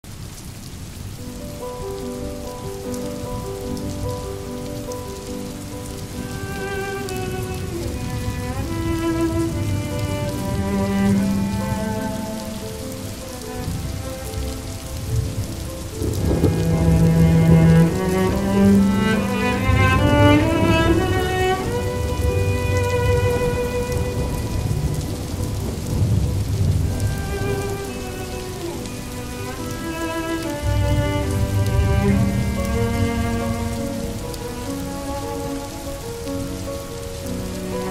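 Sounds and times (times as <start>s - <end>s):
steady rain: 0.0s - 37.9s
soft music of held notes: 0.2s - 37.9s
thunder rumbles: 5.2s - 37.9s.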